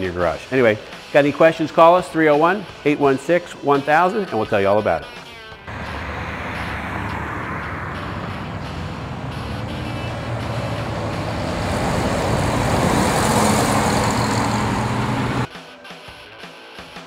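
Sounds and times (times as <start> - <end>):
car driving past: 5.7 - 15.5
road traffic noise: 5.7 - 15.5.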